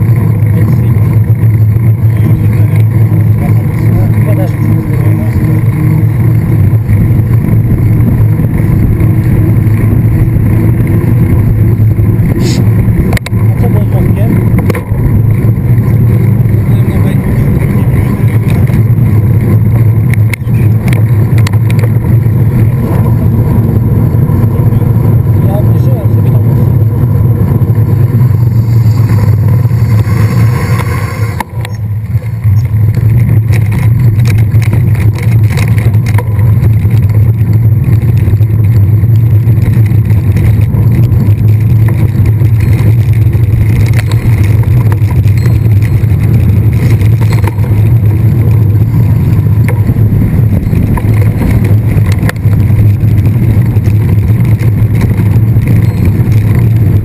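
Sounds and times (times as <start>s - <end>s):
wind rumble on camera: 0.0s - 57.0s
bike rattling clicks: 17.5s - 23.9s, 30.7s - 57.0s.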